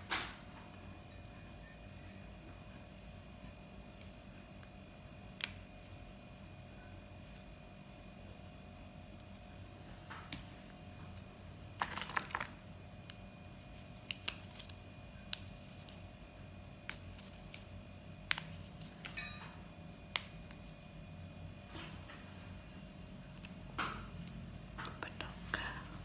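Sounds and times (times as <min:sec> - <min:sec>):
fern stems snapping by hand: 0:04.0 - 0:05.8, 0:14.0 - 0:16.0, 0:16.8 - 0:19.2, 0:20.0 - 0:20.7.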